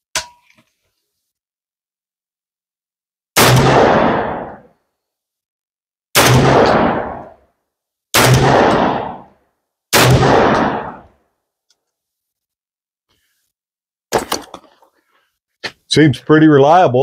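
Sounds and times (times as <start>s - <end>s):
shotgun blasts: 3.4s - 4.7s, 6.2s - 7.4s, 8.1s - 11.2s.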